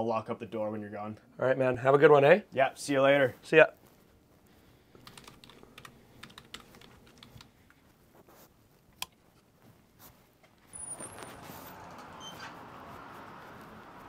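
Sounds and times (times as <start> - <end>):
keyboard typing: 5.0 - 7.8.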